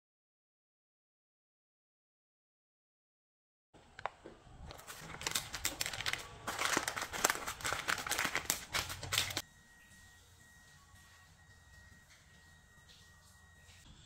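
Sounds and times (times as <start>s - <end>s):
parchment paper crinkling: 4.0s - 9.4s.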